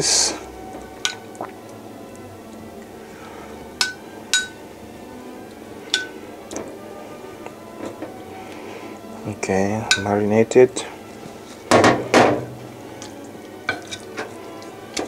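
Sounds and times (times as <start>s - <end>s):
metal spoon clinking ceramic bowl: 3.8s - 4.6s, 5.9s - 6.2s, 9.9s - 10.1s, 13.7s - 14.3s.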